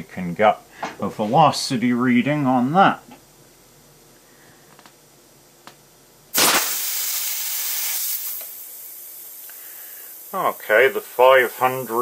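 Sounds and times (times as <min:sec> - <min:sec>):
air rifle shot: 0:06.4 - 0:08.5
escaping air hissing: 0:06.4 - 0:12.0.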